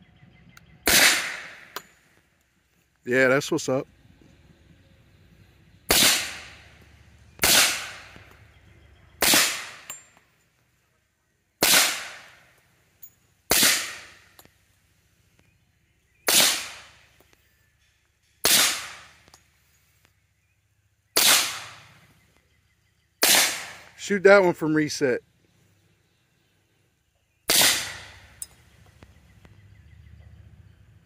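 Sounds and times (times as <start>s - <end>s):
suppressed pistol shots: 0.8s - 1.9s, 5.9s - 6.8s, 7.4s - 8.4s, 9.2s - 10.0s, 11.6s - 12.4s, 13.5s - 14.3s, 16.3s - 17.0s, 18.4s - 19.3s, 21.2s - 22.0s, 23.2s - 24.0s, 27.5s - 28.5s.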